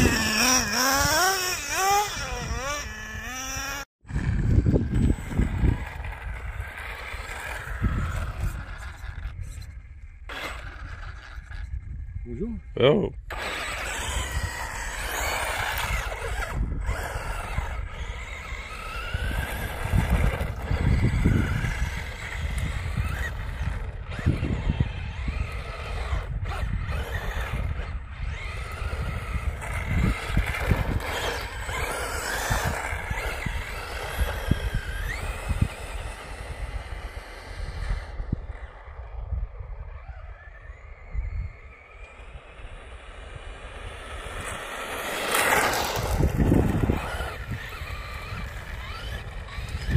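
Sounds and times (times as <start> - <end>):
rc car motor whining: 0.0 - 49.9
wind rumble on microphone: 0.0 - 49.9.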